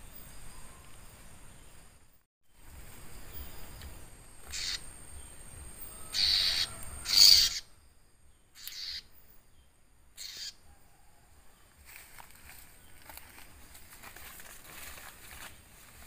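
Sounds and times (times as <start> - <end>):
bird raspy distress calls: 4.5 - 4.9, 5.9 - 7.8, 8.5 - 9.1, 10.2 - 10.6.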